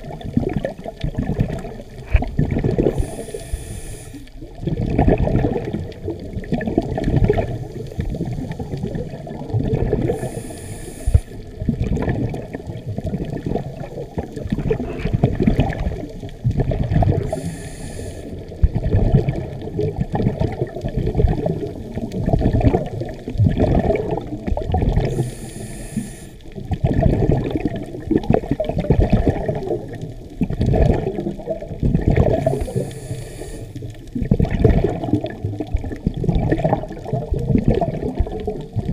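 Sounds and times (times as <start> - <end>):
underwater exhaled bubbles rushing: 0.0 - 38.9
regulator hiss: 2.9 - 4.3, 10.1 - 11.4, 17.3 - 18.4, 25.0 - 26.5, 32.4 - 33.8.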